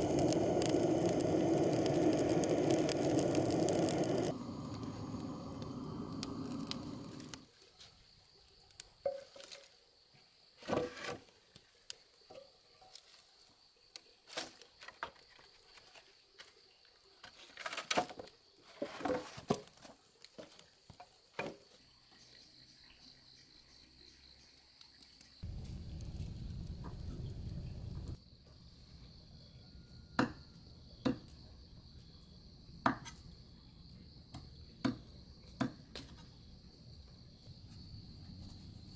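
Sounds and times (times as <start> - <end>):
low rumbling noise: 0.0 - 7.4, 25.4 - 28.2
high insect chirr: 0.0 - 10.6, 20.0 - 35.5.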